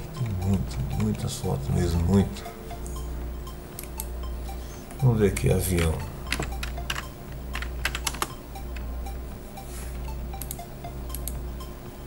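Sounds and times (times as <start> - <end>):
low steady hum: 0.0 - 12.0
typing on computer keyboard: 5.8 - 8.4.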